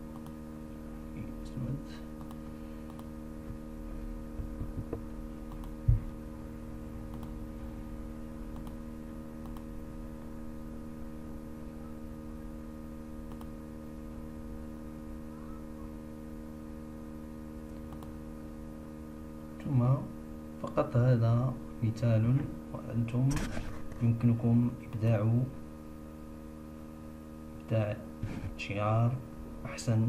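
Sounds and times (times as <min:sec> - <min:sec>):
electrical hum: 0:00.0 - 0:30.0
mouse clicks: 0:02.2 - 0:03.1, 0:05.5 - 0:05.8, 0:07.1 - 0:07.3, 0:08.5 - 0:08.8, 0:09.4 - 0:09.7, 0:13.3 - 0:13.5, 0:17.9 - 0:18.2.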